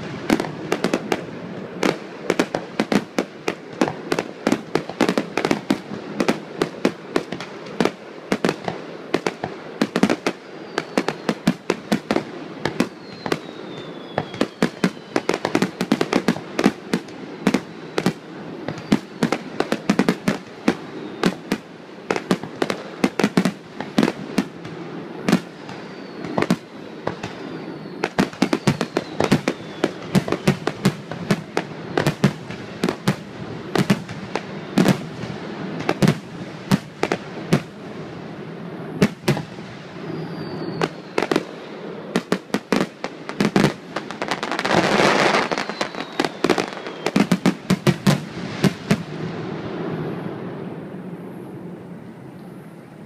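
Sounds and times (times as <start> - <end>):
fireworks bursting bangs: 0.0 - 51.8
faint falling firework whistle: 10.4 - 21.6, 25.3 - 32.4, 39.0 - 41.5, 43.5 - 48.9.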